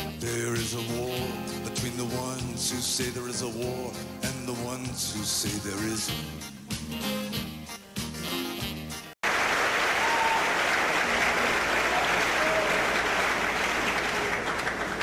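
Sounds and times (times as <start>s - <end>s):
audience applauding: 9.2s - 15.0s.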